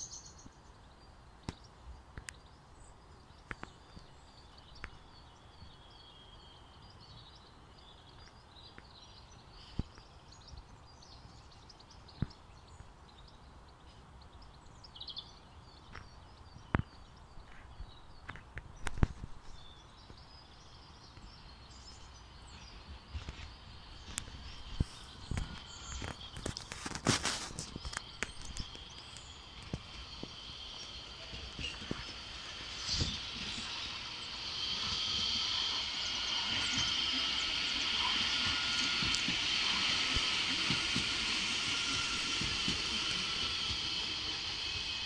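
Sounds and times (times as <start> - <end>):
electric tram rolling on rails: 0.0 - 45.0
faint bird chirps: 0.0 - 45.0
high whine: 21.7 - 45.0.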